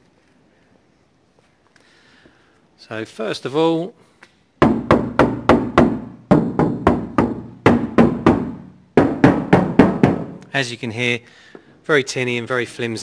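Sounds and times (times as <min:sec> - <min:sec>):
rapid knocking on thin steel panel: 0:04.6 - 0:10.4.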